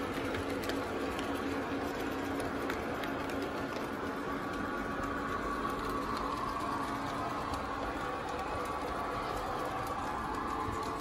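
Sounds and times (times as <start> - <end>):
faint wheel whine: 0.0 - 11.0
model train cars rumbling: 0.0 - 11.0.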